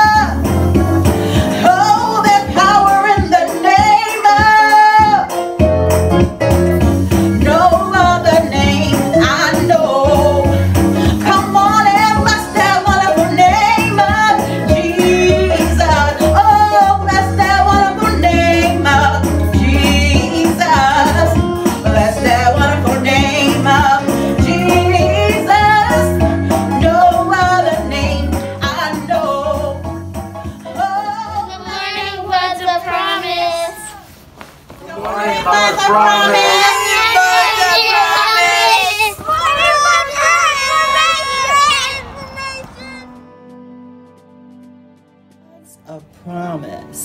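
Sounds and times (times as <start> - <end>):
instrumental accompaniment with bass: 0.0 - 33.4, 39.4 - 47.0
woman singing gospel song: 1.5 - 5.4, 7.3 - 29.9, 30.6 - 34.0, 34.8 - 38.6.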